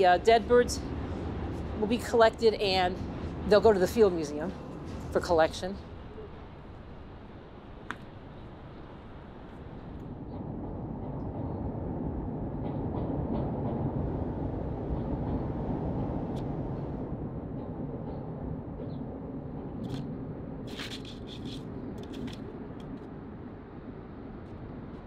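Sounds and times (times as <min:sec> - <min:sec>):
city traffic rumble: 0:00.0 - 0:25.0.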